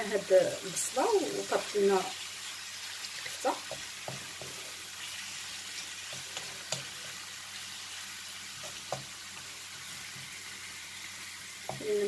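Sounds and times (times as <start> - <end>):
meat and onion sizzling in oil: 0.0 - 12.0
wooden spoon knocking against pan: 3.6 - 4.6, 8.6 - 9.2.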